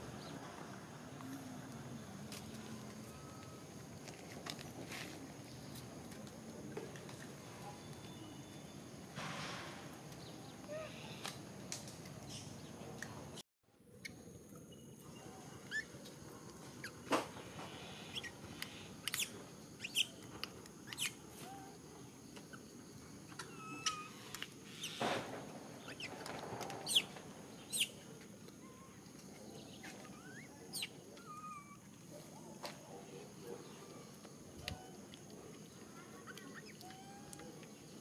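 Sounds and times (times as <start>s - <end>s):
small birds chirping: 10.1s - 11.4s, 12.2s - 25.1s, 25.7s - 38.0s.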